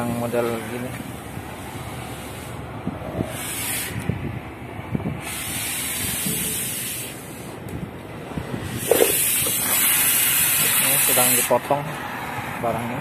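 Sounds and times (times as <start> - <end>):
cutting torch hissing: 1.1 - 4.2, 5.1 - 7.6, 8.6 - 11.8.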